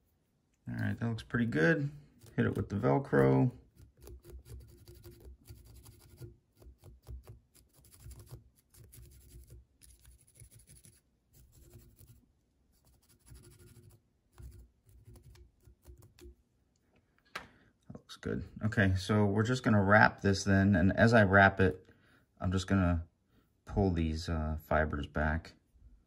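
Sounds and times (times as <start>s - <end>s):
brush scratching fibres: 0.8s - 16.3s.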